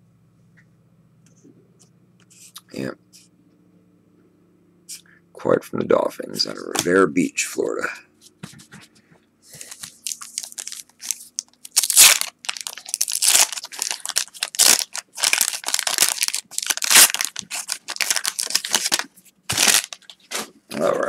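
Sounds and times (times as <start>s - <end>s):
waxed paper wrapper crinkling: 9.5s - 20.6s.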